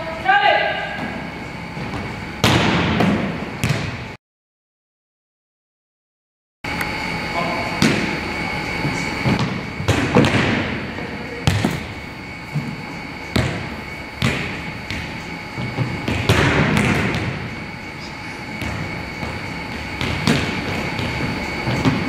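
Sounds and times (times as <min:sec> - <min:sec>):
volleyballs smacking gym floor: 0:01.8 - 0:04.0, 0:09.2 - 0:17.5, 0:18.5 - 0:22.0.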